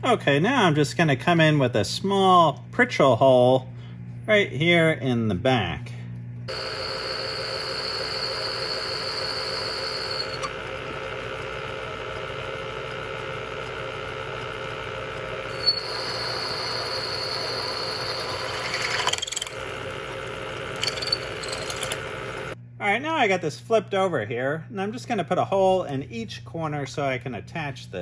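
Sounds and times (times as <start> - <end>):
high squeal of drill bit: 6.5 - 10.5, 15.5 - 19.2
milling machine running: 6.5 - 22.6.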